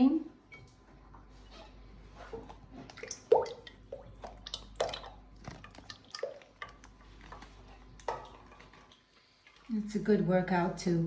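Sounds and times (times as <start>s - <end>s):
liquid dripping and splashing: 2.4s - 10.0s.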